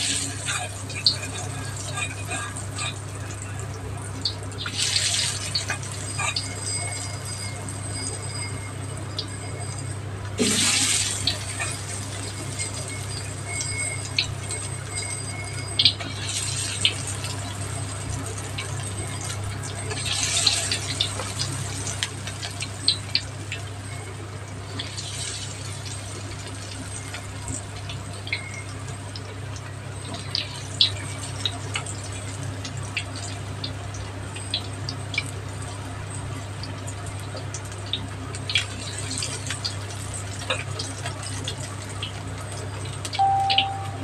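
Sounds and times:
food deep-frying in oil: 0:00.0 - 0:44.0
low steady hum: 0:43.1 - 0:44.0.

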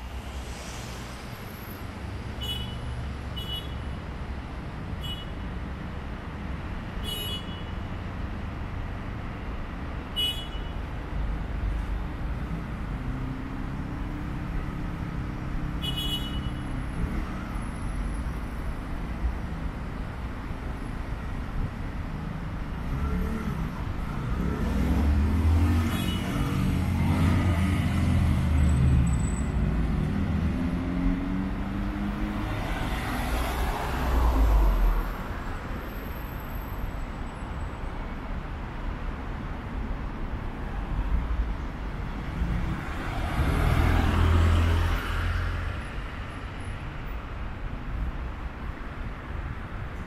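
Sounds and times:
vehicle passing with low rumble: 0:00.0 - 0:02.4
city street traffic: 0:00.0 - 0:50.0.

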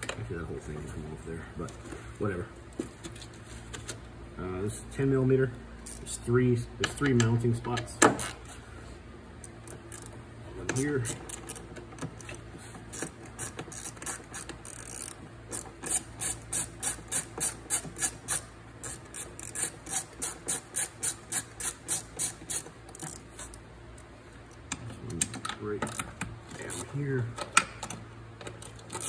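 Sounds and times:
ratchet clicking: 0:09.4 - 0:23.6.

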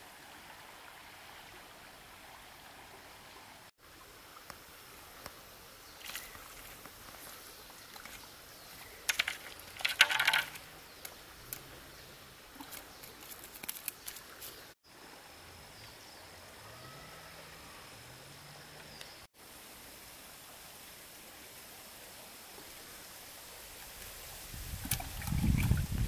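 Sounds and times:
steady outdoor hiss: 0:00.0 - 0:26.0
crunching and clattering on pebbles: 0:08.8 - 0:10.7.

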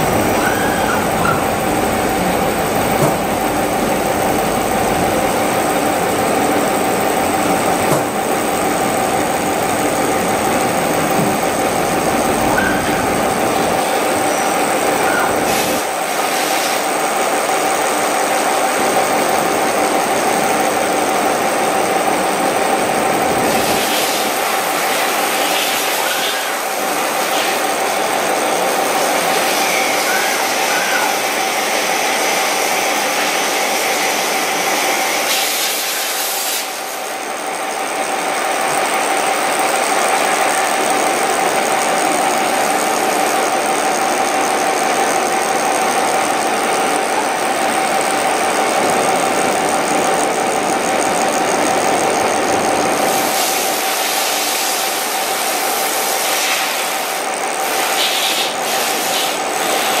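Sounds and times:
machine hum: 0:00.0 - 1:00.0
scraping hiss of cutting plastic: 0:35.2 - 0:36.8, 0:56.1 - 1:00.0.

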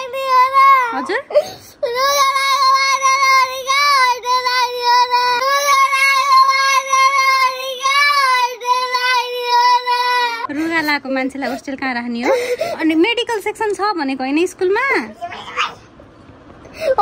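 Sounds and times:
girl crying: 0:00.0 - 0:10.9.

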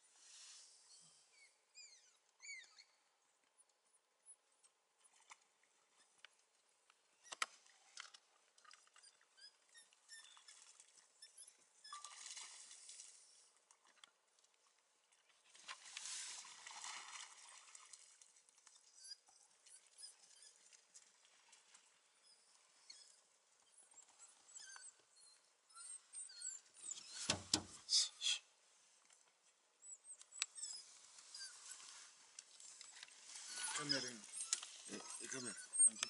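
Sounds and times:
dogs squeaking twitters: 0:01.4 - 0:02.9, 0:09.0 - 0:10.5, 0:29.9 - 0:31.8, 0:33.4 - 0:36.0.

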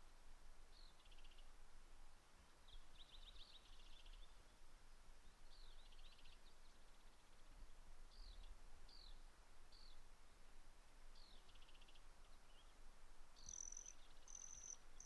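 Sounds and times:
songbird trilling: 0:13.4 - 0:15.0.

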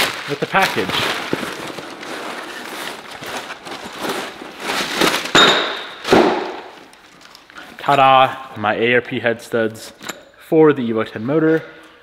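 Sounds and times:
packing paper rustling: 0:00.0 - 0:07.8.

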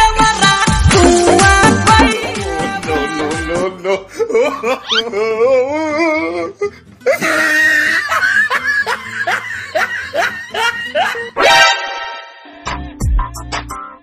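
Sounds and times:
comedy music: 0:00.8 - 0:14.0
laughter: 0:03.9 - 0:05.3, 0:07.1 - 0:11.4
wobbling voice: 0:04.8 - 0:06.1.

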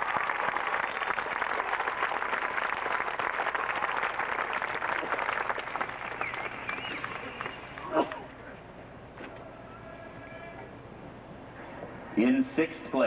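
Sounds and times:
crowd clapping: 0:00.0 - 0:08.5.

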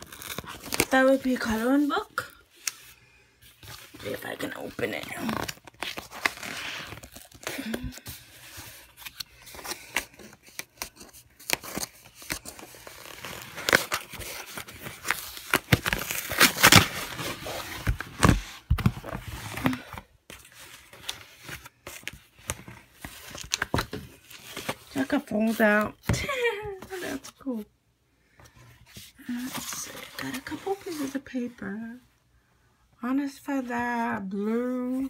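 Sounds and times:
package wrapping tearing: 0:00.0 - 0:01.0, 0:09.0 - 0:18.4.

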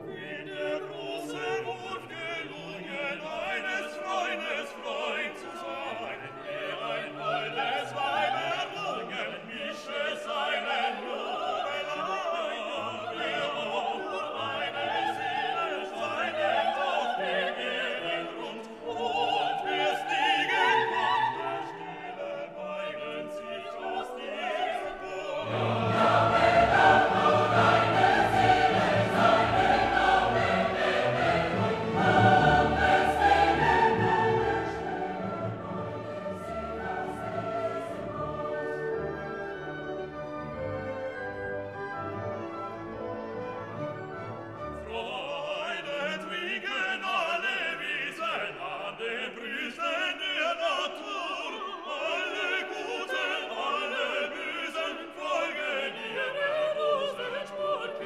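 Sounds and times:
operatic singing: 0:00.0 - 0:40.5, 0:44.7 - 0:58.0
orchestra playing: 0:25.1 - 0:45.1.

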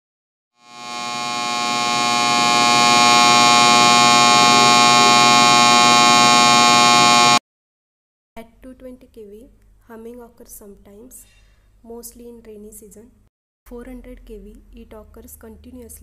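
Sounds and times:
power line electrical buzzing hum: 0:00.6 - 0:07.4.

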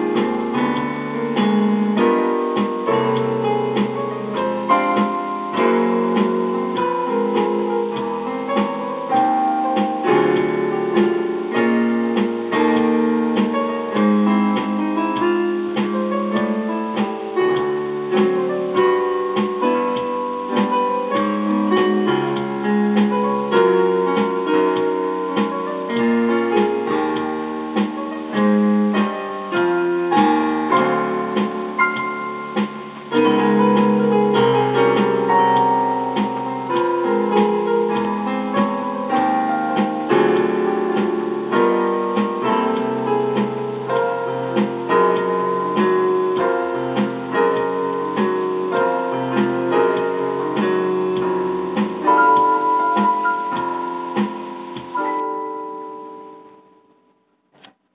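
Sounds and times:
piano music: 0:00.0 - 0:57.6.

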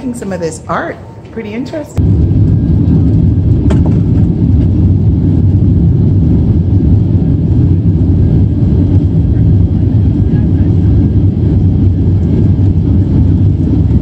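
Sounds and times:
jet engines low rumble: 0:00.0 - 0:14.0.

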